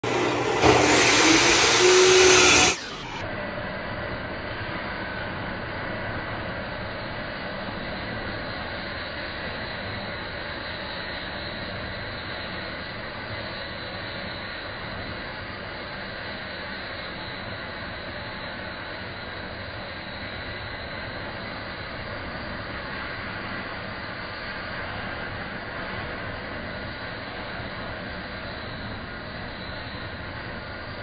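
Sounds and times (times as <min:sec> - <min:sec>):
loud high whine: 0:00.0 - 0:03.2
metal band saw cutting steel: 0:00.0 - 0:03.2.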